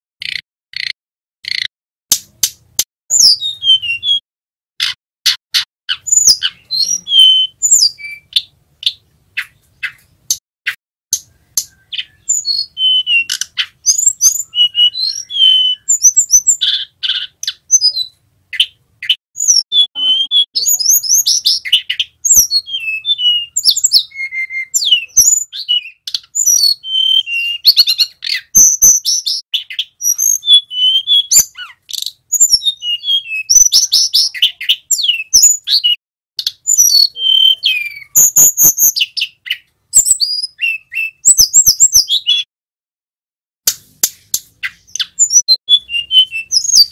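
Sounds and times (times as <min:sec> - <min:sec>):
bird singing trills and whistles: 0:02.5 - 0:04.2, 0:04.8 - 0:42.5, 0:44.1 - 0:46.9
bird sharp clicks: 0:08.8 - 0:12.2.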